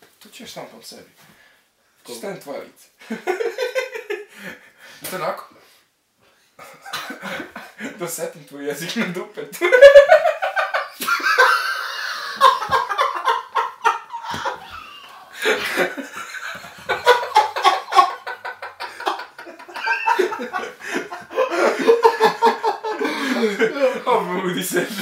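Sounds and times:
men laughing: 3.1s - 4.6s, 6.6s - 8.0s, 9.6s - 25.0s.

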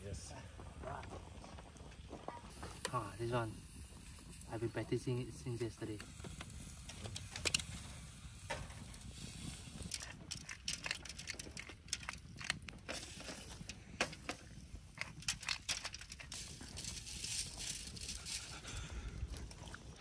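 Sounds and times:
wood fire crackling: 0.0s - 20.0s.

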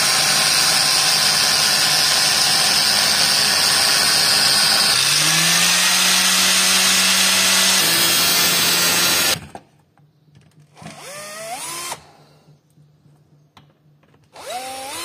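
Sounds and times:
power tool motor running: 0.0s - 9.5s, 14.4s - 15.0s.

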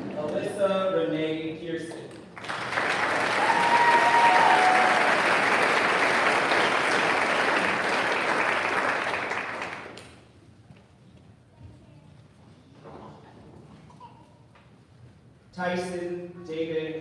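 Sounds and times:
audience applause: 2.4s - 10.1s.

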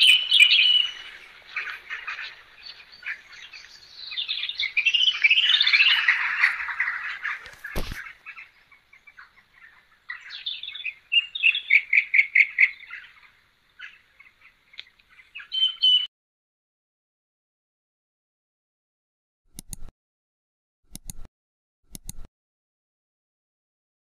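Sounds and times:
birds chirping and singing: 0.0s - 16.1s.

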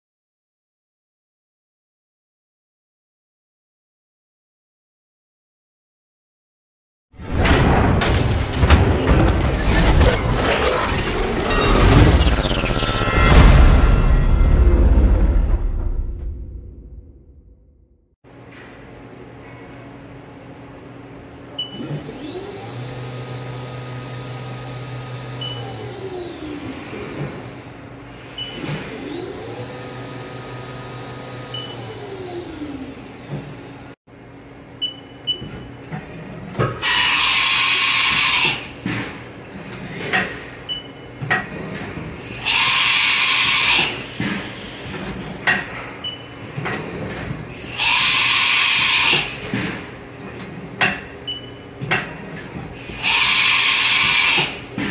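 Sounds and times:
machine axis drives whining: 8.5s - 15.0s.

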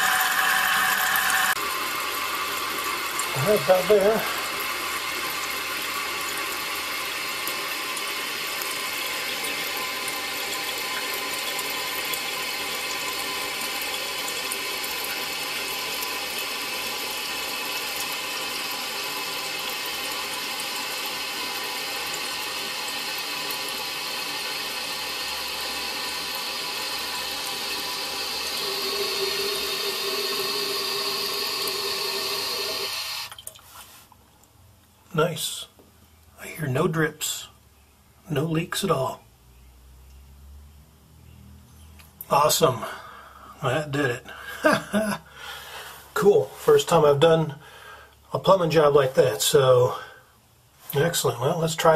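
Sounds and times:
valve tone: 0.0s - 1.6s
toilet tank refilling hiss: 0.0s - 33.4s.

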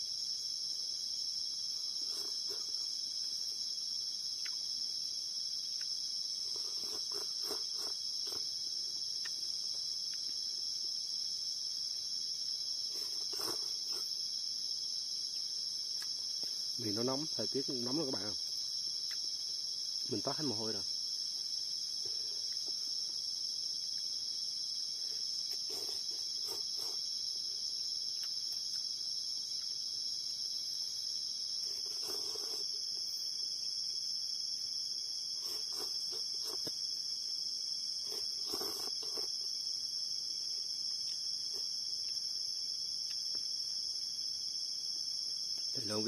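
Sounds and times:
night insects trilling: 0.0s - 46.0s
slurping noodles: 2.0s - 2.9s, 6.5s - 8.5s, 12.9s - 14.2s, 25.5s - 27.1s, 31.6s - 33.0s, 35.4s - 36.7s, 38.0s - 39.4s.

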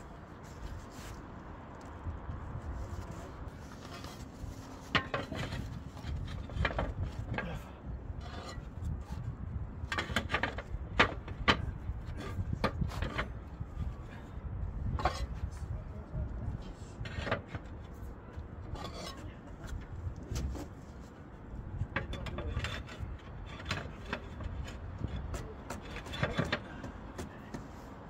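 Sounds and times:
roofing materials knocking and scraping: 3.0s - 15.5s, 16.5s - 28.0s.

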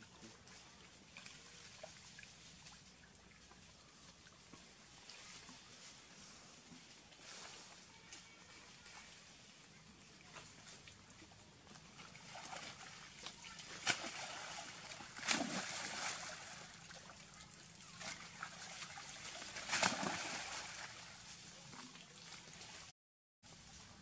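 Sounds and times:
water sloshing and churning: 0.3s - 6.0s, 8.7s - 22.9s
monkeys splashing into river: 11.9s - 21.2s.

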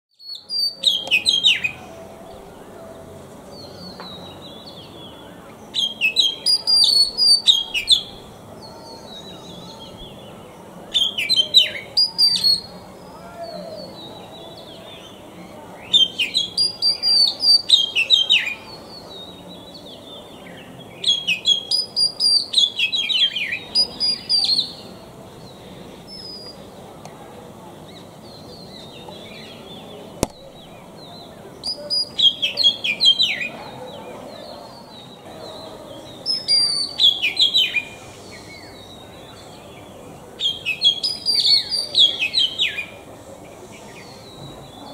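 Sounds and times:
magpie-robin singing: 0.2s - 26.8s, 27.8s - 43.0s
sharp click: 30.2s - 30.4s.

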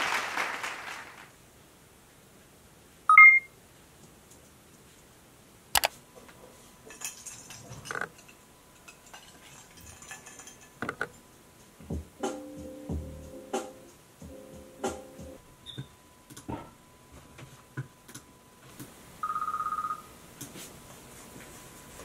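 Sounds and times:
two-note electronic beep: 3.1s - 3.5s
music with bass beat: 11.8s - 15.4s.

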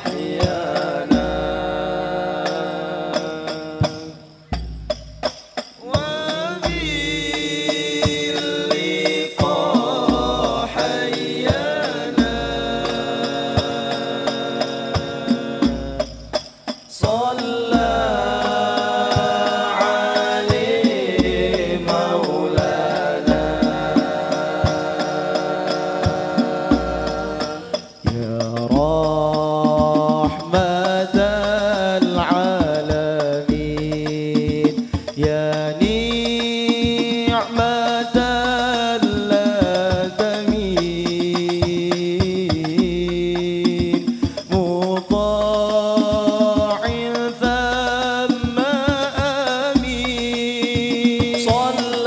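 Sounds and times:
men singing into microphones: 0.0s - 4.6s, 5.8s - 52.0s
frame drums struck by hand: 0.0s - 52.0s.

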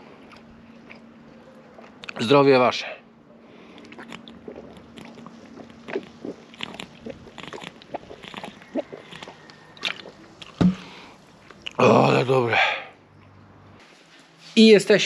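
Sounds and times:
man gulping water: 3.8s - 11.8s
mouth and bottle clicks: 7.5s - 10.9s.

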